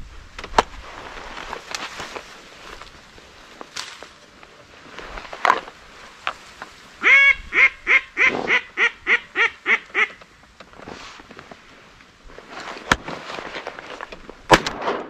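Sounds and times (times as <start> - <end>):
duck call quacking: 7.0 - 10.2.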